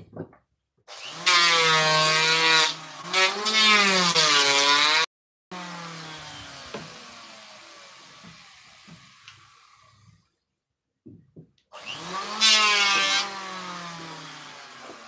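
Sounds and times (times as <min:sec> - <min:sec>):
power tool whine: 0:05.5 - 0:10.2, 0:11.8 - 0:15.0.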